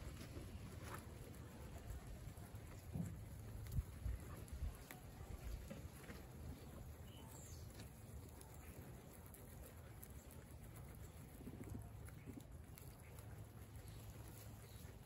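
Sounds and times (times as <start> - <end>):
guinea pigs munching grass: 0.0 - 15.0.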